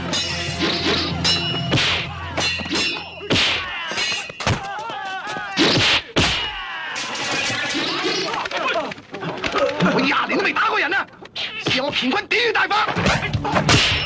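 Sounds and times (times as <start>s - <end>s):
staff and blade strikes: 0.0s - 4.6s, 5.6s - 6.6s, 13.6s - 14.0s
metallic clangs: 0.0s - 4.7s
whacks and thuds: 1.7s - 4.7s, 5.6s - 6.6s.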